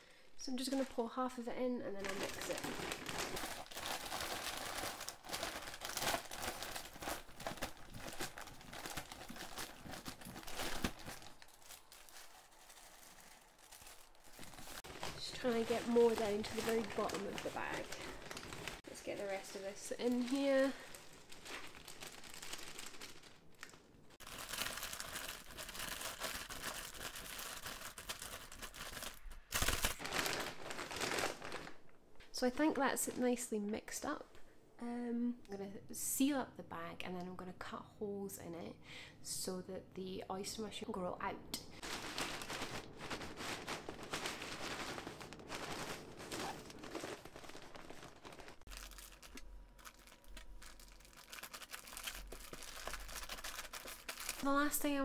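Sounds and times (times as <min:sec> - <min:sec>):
plastic bags crinkling: 0:02.0 - 0:32.0, 0:41.8 - 0:55.0.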